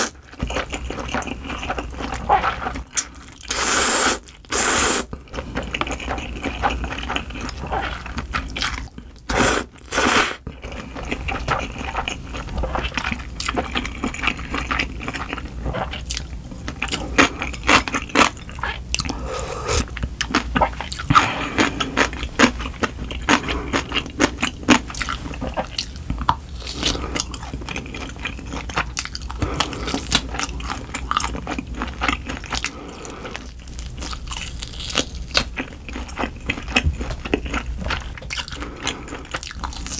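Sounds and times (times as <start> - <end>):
loud noodle slurps: 3.5 - 5.1, 9.3 - 10.4, 19.2 - 19.9.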